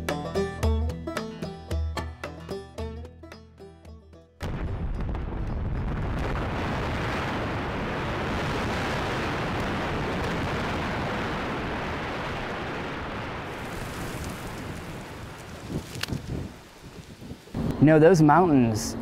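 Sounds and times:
mine blast rumble: 4.4s - 13.5s.

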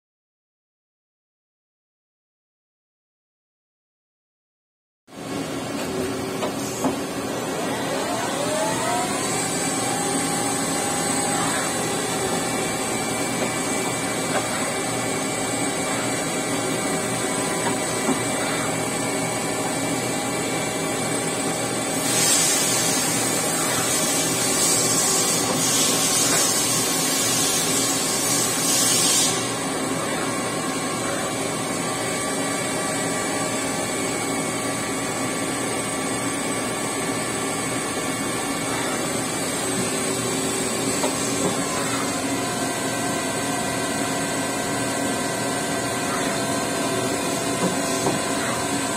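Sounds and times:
machine motor whine: 5.2s - 48.9s
loud hiss: 21.9s - 29.7s.

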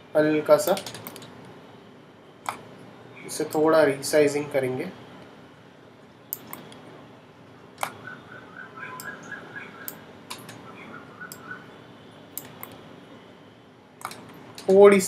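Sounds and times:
computer mouse clicking: 0.6s - 1.3s, 2.4s - 2.6s, 6.3s - 6.8s, 9.0s - 10.6s, 12.3s - 12.8s, 14.0s - 14.8s.

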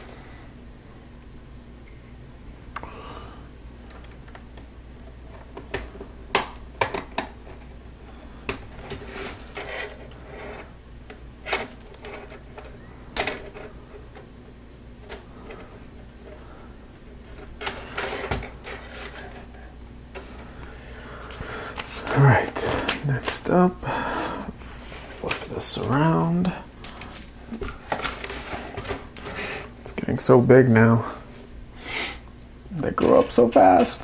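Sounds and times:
plastic parts clicking and knocking: 3.9s - 7.8s.

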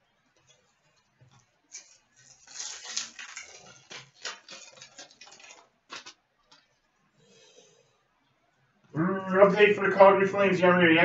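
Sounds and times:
foil wrapper crinkling and tearing: 0.9s - 6.7s.

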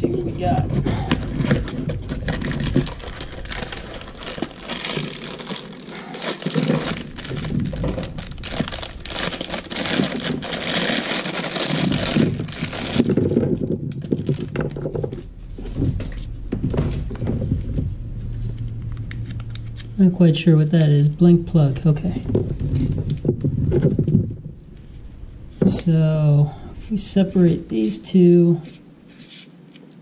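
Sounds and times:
plastic bag crinkling: 0.4s - 20.1s.

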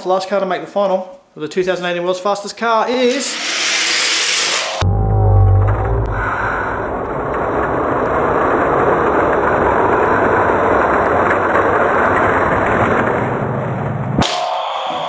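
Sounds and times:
toy cars rolling on plastic track: 3.0s - 4.6s, 7.6s - 13.4s.

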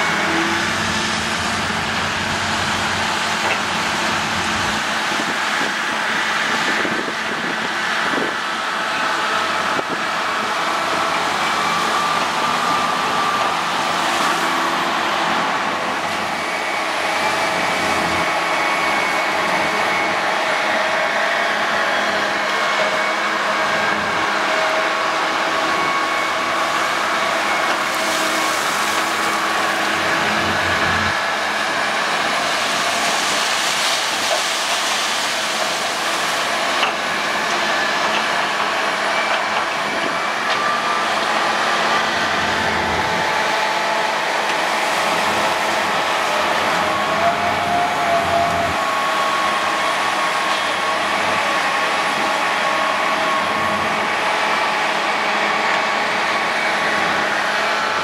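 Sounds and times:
diesel engines running: 0.0s - 58.0s
hydraulic whine: 0.0s - 58.0s.

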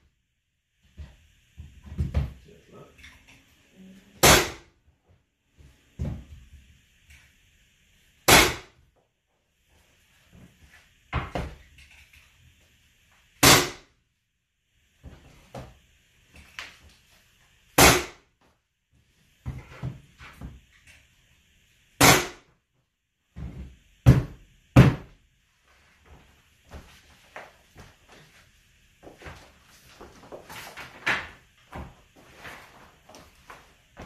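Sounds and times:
flooring nailer firing bangs: 4.2s - 4.7s, 8.2s - 8.8s, 13.4s - 13.9s, 17.8s - 18.2s, 22.0s - 22.5s.

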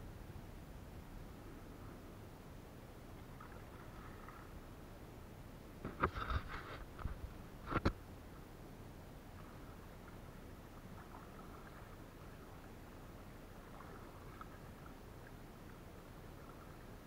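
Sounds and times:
low water wash: 0.0s - 17.0s
small water drips: 9.4s - 17.0s.

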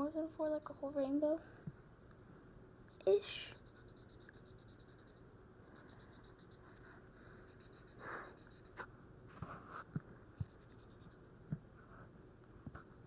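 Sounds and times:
marker scratching on paper: 2.9s - 6.8s, 7.5s - 8.8s, 10.4s - 11.2s.

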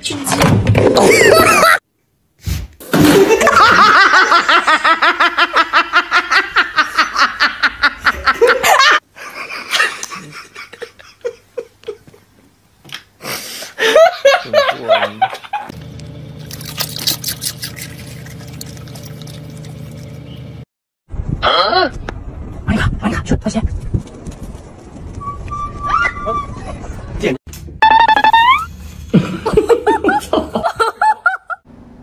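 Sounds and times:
low car hum: 15.7s - 20.6s.

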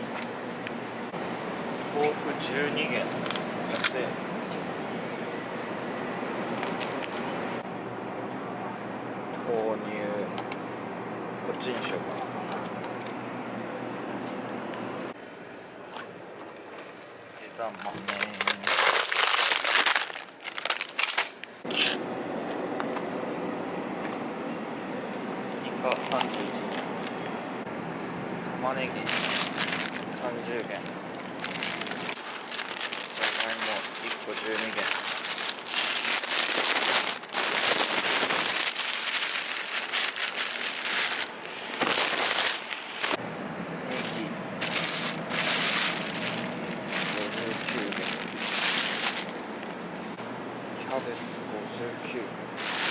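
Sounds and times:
plastic bag crinkling: 17.4s - 22.0s, 25.8s - 27.1s, 29.0s - 43.2s, 43.9s - 50.1s, 52.6s - 52.9s.

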